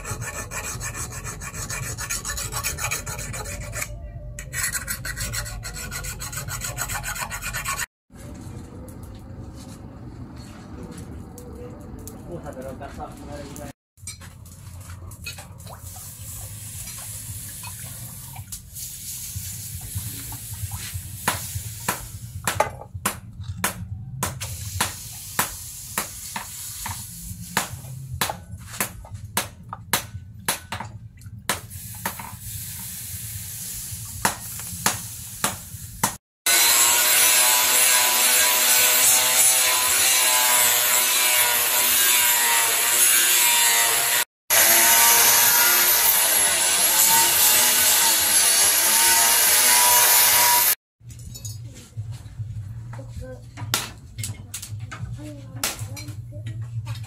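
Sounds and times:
water splashing and pouring: 15.2s - 21.9s
angle grinder grinding steel: 36.5s - 50.8s.

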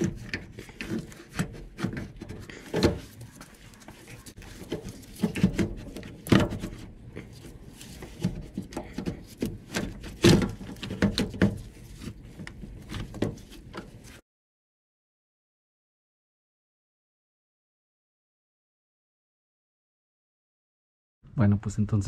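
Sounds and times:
plastic knocks and clunks: 4.6s - 6.9s, 8.0s - 11.7s.

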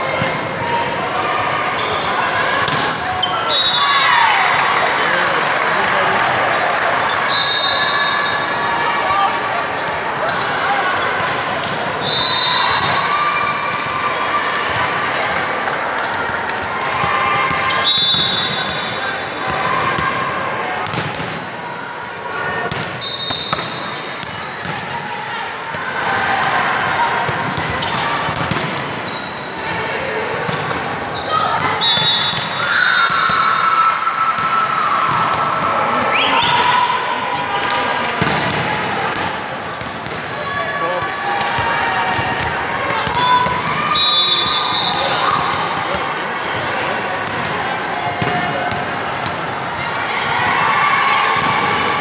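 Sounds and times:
voices in gym hall: 0.0s - 52.0s
referee's whistle blast: 7.3s - 8.4s, 17.8s - 19.0s, 23.0s - 23.8s, 31.8s - 33.2s, 43.9s - 45.4s.

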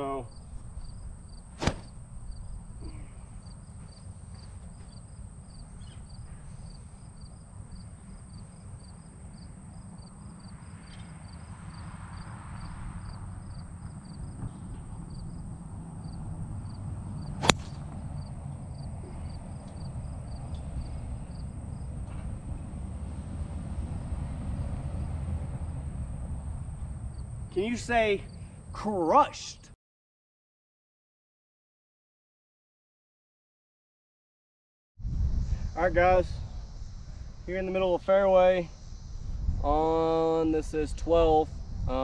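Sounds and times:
crickets chirping: 0.0s - 29.3s, 35.0s - 42.0s
wind rumbling on microphone: 0.2s - 27.6s, 35.0s - 42.0s
golf club striking ball: 1.6s - 2.4s, 17.3s - 18.4s.

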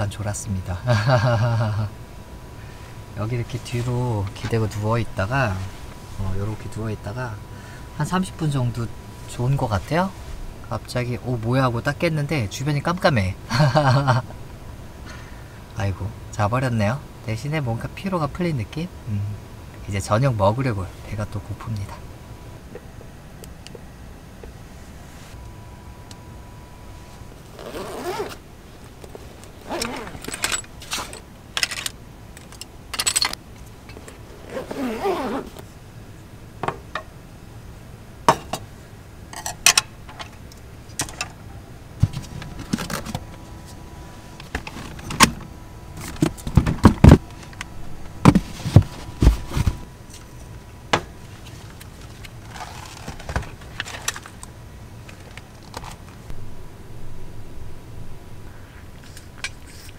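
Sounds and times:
rustling of packages: 51.2s - 56.3s.

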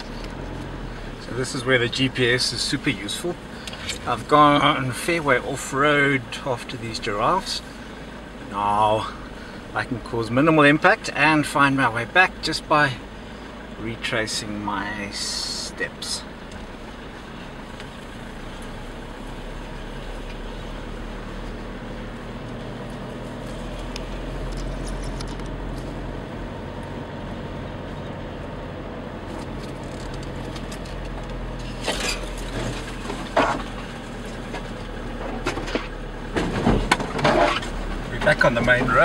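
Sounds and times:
vehicle rumble from inside cab: 0.0s - 39.0s
knocks and rattles: 34.4s - 39.0s.

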